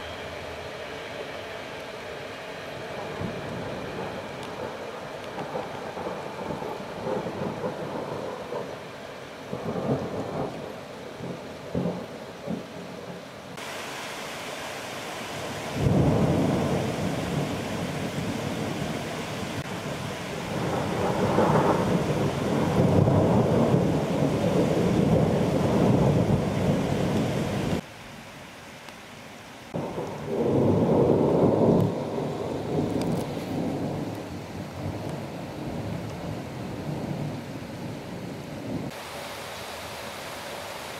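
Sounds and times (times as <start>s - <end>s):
steady rain: 0.0s - 40.9s
rolling thunder: 3.0s - 8.8s, 9.5s - 13.2s, 15.7s - 27.8s, 29.8s - 39.0s.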